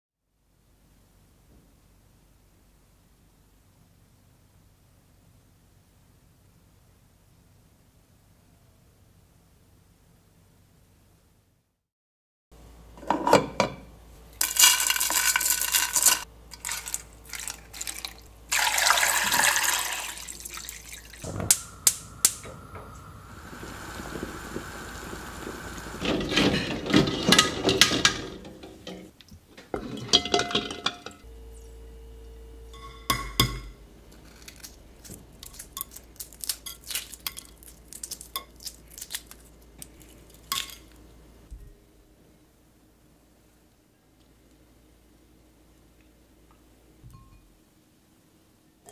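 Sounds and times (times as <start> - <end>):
strainer clinking on pot: 14.4 - 20.1
water pouring into pot: 14.4 - 27.0
egg shell cracking: 34.2 - 41.0.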